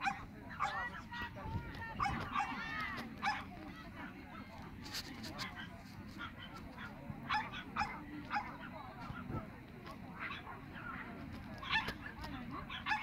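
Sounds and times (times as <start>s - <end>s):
small dogs yapping: 0.0s - 1.1s, 1.9s - 3.7s, 5.4s - 9.2s, 10.2s - 13.0s
background murmur: 0.0s - 13.0s.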